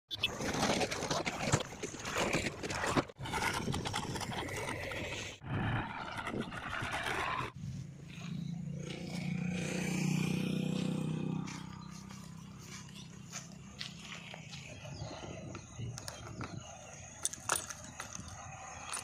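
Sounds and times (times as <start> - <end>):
diesel tractor engines under load: 5.7 - 19.0.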